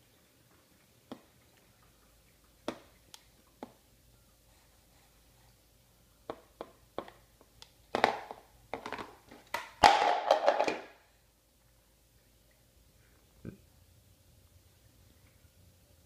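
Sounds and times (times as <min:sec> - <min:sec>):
plastic bowl tapping: 0:07.9 - 0:10.9
plastic bowl clattering: 0:07.9 - 0:11.0.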